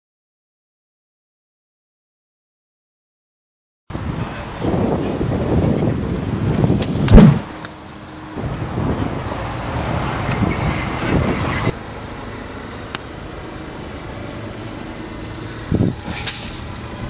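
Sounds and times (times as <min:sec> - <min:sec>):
car engine and road noise: 0:03.9 - 0:17.0
brief thump: 0:07.0 - 0:07.5.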